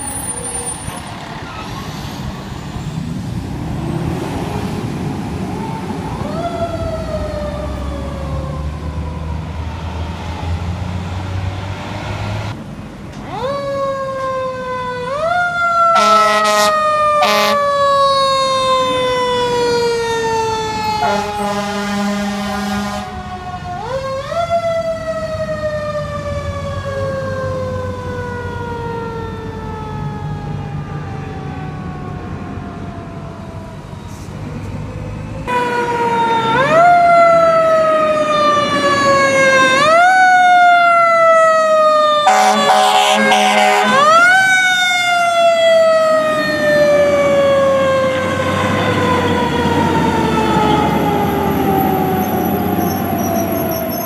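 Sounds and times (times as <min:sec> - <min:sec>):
mechanical siren wailing: 0:00.0 - 0:01.0, 0:05.6 - 0:10.5, 0:13.2 - 0:34.1, 0:35.2 - 0:54.0
air horn blast: 0:16.0 - 0:17.6, 0:21.0 - 0:23.1, 0:42.3 - 0:44.2.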